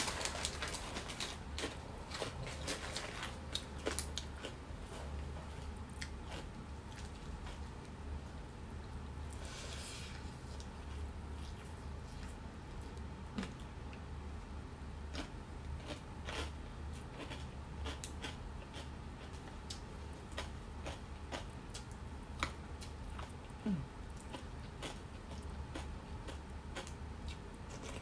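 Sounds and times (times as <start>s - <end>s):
steady low hum: 0.0s - 28.0s
person chewing: 3.5s - 7.7s, 15.1s - 19.5s, 20.2s - 28.0s.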